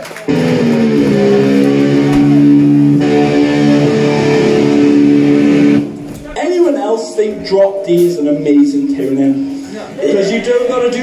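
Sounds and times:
amplified electric guitar chord: 0.3s - 6.3s
bass guitar: 0.3s - 6.4s.

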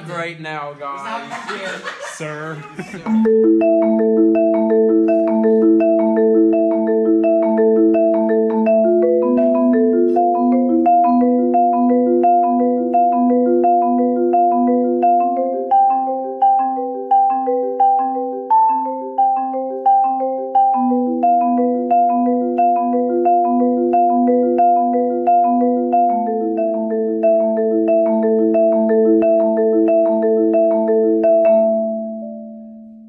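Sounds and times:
marimba rolled chords: 1.0s - 33.0s.

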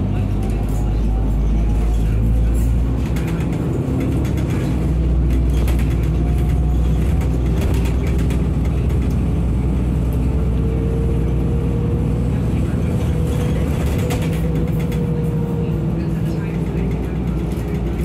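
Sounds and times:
bus body rattles: 0.0s - 18.0s
bus engine hum: 0.0s - 18.0s.

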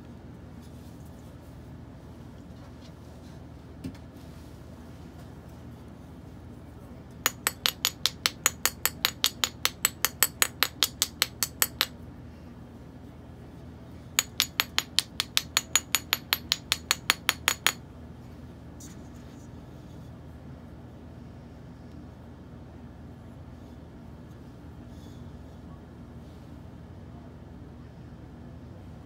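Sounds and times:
metal spoon tapping on steel mold: 7.3s - 11.9s, 14.2s - 17.8s.

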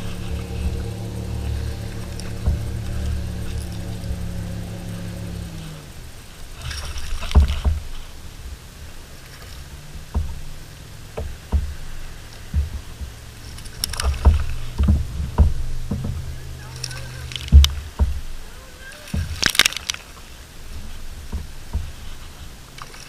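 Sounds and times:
low knocks: 0.0s - 5.7s, 6.5s - 8.2s, 9.7s - 18.4s, 20.7s - 22.3s
water sloshing against kayak hull: 0.0s - 23.0s
water splash: 0.0s - 23.0s.

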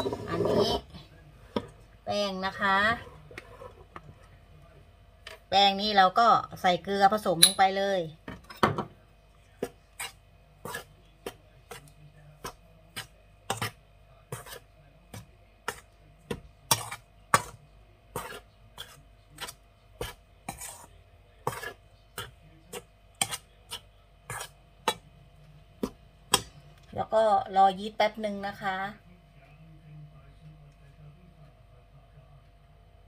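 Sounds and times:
metal spoon clinking in steel bowl: 7.4s - 7.6s.

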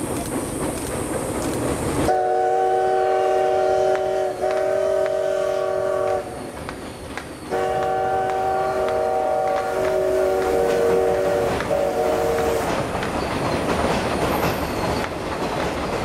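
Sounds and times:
train whistle blast: 2.1s - 6.5s, 7.5s - 12.8s.

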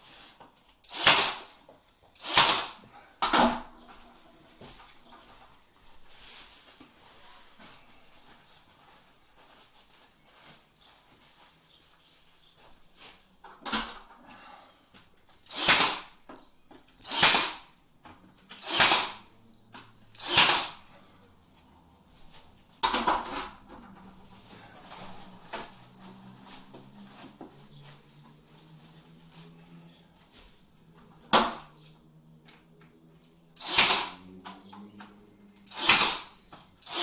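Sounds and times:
pin nailer firing into wood: 0.9s - 1.5s, 2.2s - 3.6s, 15.5s - 16.1s, 17.0s - 17.6s, 18.5s - 19.2s, 20.2s - 20.8s, 33.6s - 34.2s, 35.7s - 37.0s.

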